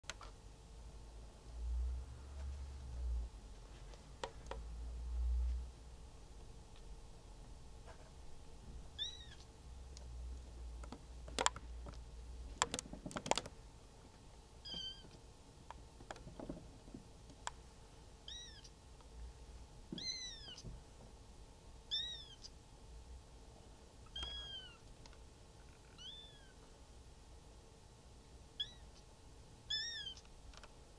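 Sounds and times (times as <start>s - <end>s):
kitten mewing: 9.0s - 9.5s, 14.6s - 15.2s, 18.2s - 18.7s, 20.0s - 20.7s, 21.9s - 22.5s, 24.1s - 24.8s, 25.9s - 26.6s, 28.6s - 29.0s, 29.7s - 30.2s.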